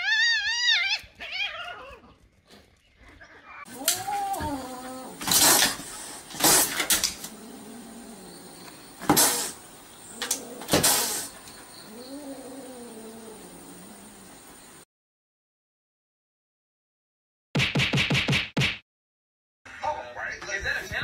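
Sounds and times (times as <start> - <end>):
cat growl-yowling: 0.0 - 2.1, 3.3 - 14.4
cat hissing: 3.6 - 14.6.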